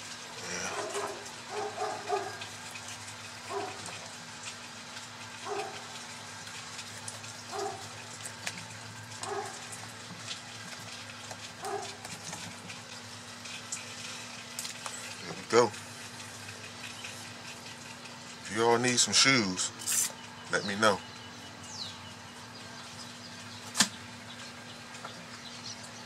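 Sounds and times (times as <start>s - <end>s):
dog barking: 0.7s - 2.4s, 3.5s - 3.9s, 5.4s - 5.9s, 7.5s - 7.9s, 9.2s - 9.6s, 11.6s - 12.0s.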